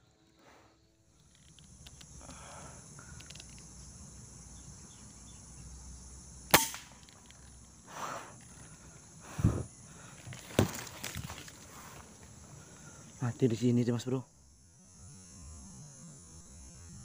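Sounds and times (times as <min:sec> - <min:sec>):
air rifle shot: 0:06.5 - 0:07.0
dull thuds: 0:09.3 - 0:11.5.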